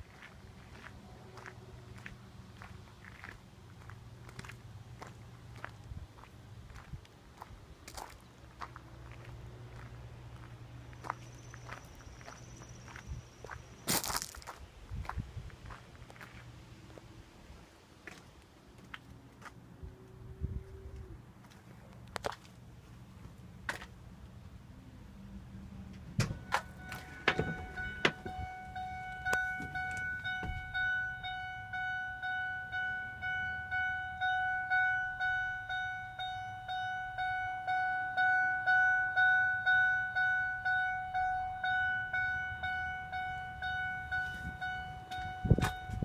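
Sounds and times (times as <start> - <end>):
dashboard warning chime dinging: 26.1 - 46.0
knocks: 26.2 - 28.4.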